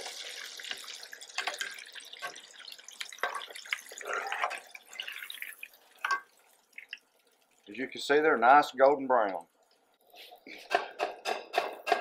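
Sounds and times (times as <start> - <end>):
oil sizzling and crackling: 0.0 - 12.0.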